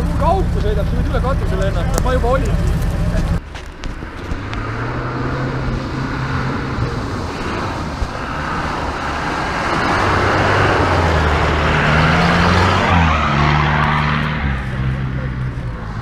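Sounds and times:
suv engine working hard: 0.0s - 3.4s
wheels churning and spraying mud: 0.0s - 16.0s.

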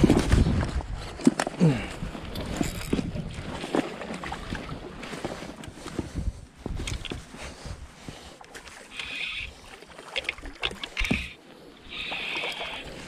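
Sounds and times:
wind: 0.0s - 13.0s
fishing reel whirring: 8.9s - 9.5s, 10.8s - 13.0s.

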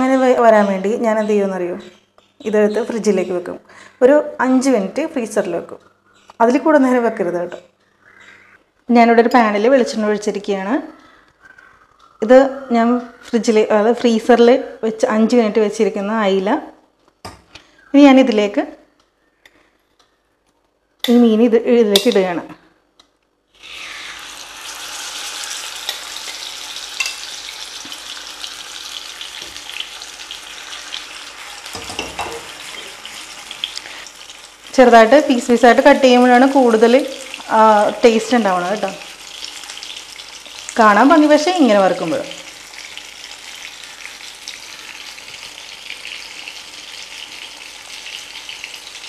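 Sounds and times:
fish sizzling in a frying pan: 23.6s - 41.4s, 42.1s - 49.0s.

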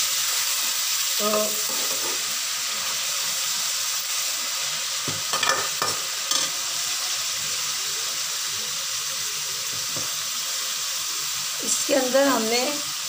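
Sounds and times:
chicken sizzling in hot oil: 0.0s - 13.0s
metal spoon scraping a pan: 1.3s - 2.3s, 5.3s - 6.6s.

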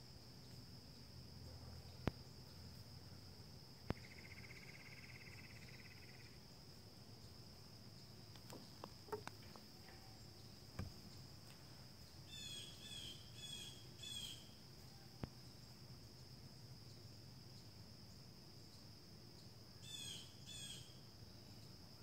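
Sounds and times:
insects droning: 0.0s - 22.0s
faint clicks: 8.3s - 10.0s
bird calling: 8.4s - 10.0s.

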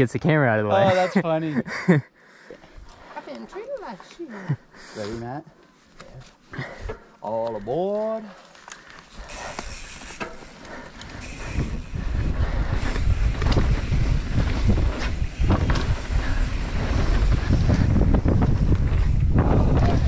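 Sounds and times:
wind on microphone: 11.2s - 20.0s
bike knocks and rattles: 12.8s - 20.0s.

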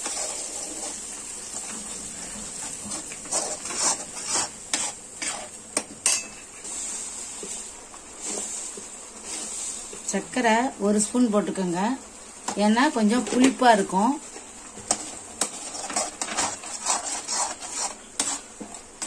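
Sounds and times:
steel spatula scraping pan: 0.0s - 1.1s, 2.7s - 7.1s, 14.9s - 18.7s
paste sizzling in oil: 0.0s - 19.0s.

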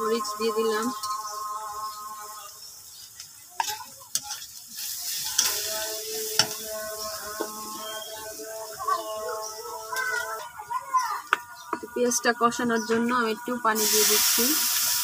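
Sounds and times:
spices sizzling in oil: 0.0s - 10.4s, 11.0s - 15.0s
metal spatula scraping pan: 3.6s - 8.1s.

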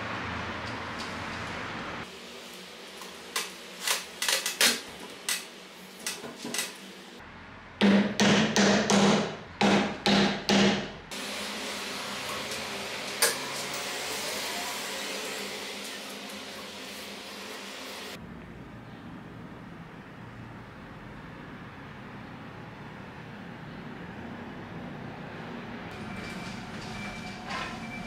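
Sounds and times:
hammer blows ringing on metal: 7.8s - 11.0s.

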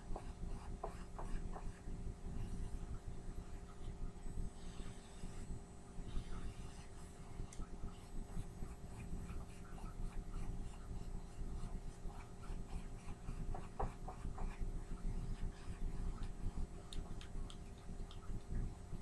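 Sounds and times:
faint ticks and crackles: 16.1s - 18.8s.

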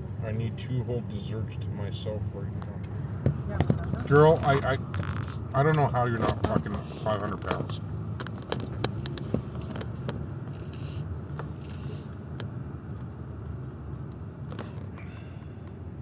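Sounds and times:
engine and tyre rumble: 0.0s - 16.0s
sharp clicks and rattles: 2.6s - 10.8s.

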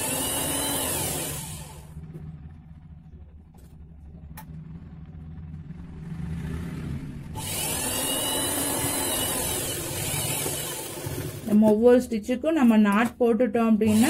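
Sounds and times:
sewing machine motor whirring: 0.0s - 2.1s, 7.3s - 11.9s.

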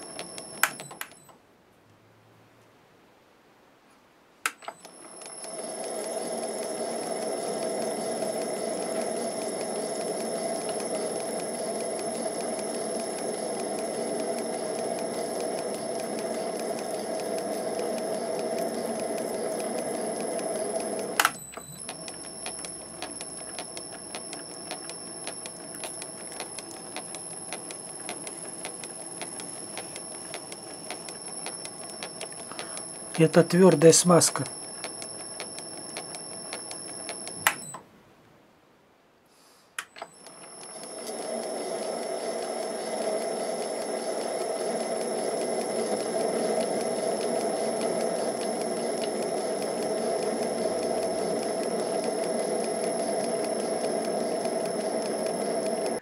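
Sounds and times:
lathe running with high whine: 5.0s - 37.4s, 40.2s - 56.0s
rapid even ticking: 5.2s - 37.4s, 40.4s - 56.0s
sharp machine click: 10.0s - 37.7s.

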